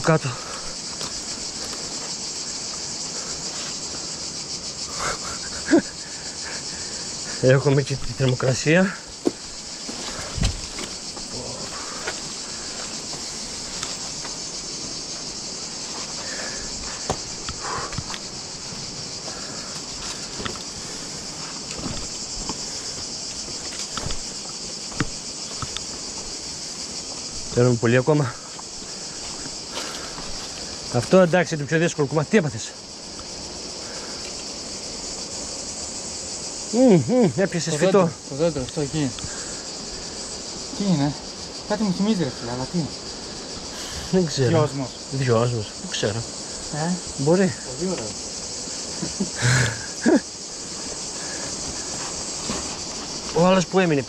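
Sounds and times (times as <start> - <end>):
cicadas chirring: 0.0 - 54.0
boots clicking on rock: 21.6 - 26.0.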